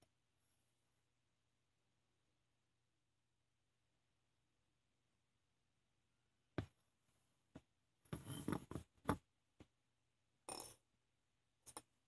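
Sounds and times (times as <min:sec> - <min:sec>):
glass bowl scraping on wood: 0:08.2 - 0:08.7.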